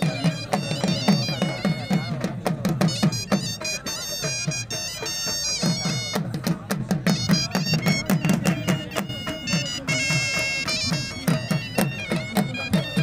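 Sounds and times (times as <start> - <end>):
fast drum beats: 0.0 - 13.0
piercing reed melody: 7.0 - 13.0.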